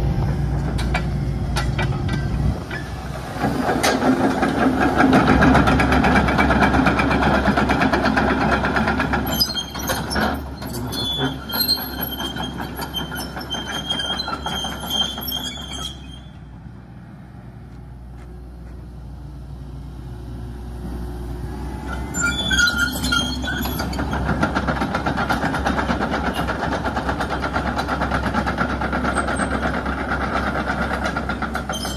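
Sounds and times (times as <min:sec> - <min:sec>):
diesel engine running: 0:00.0 - 0:31.9
steel tracks clanking and squealing: 0:00.6 - 0:16.6, 0:21.8 - 0:31.9.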